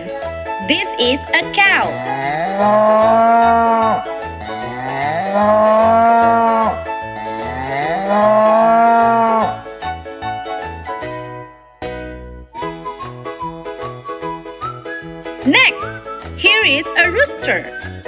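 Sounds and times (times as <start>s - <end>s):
children's backing track: 0.0s - 18.0s
cow mooing: 1.8s - 9.5s.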